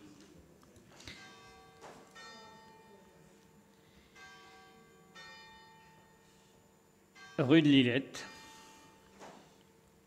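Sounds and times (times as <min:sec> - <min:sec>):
church bells ringing: 0:01.1 - 0:03.3, 0:04.0 - 0:06.3, 0:07.1 - 0:09.2.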